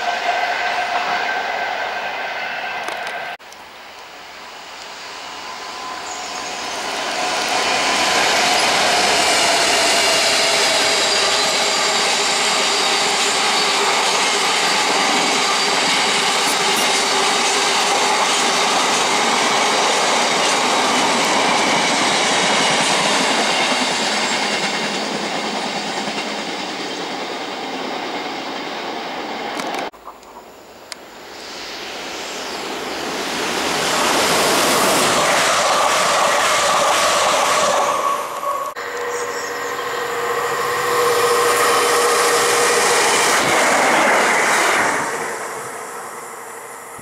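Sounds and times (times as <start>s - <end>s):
wheels ringing and squealing: 4.5s - 29.5s, 33.9s - 44.7s
train wheels rumbling on rails: 4.6s - 29.9s, 31.8s - 47.0s.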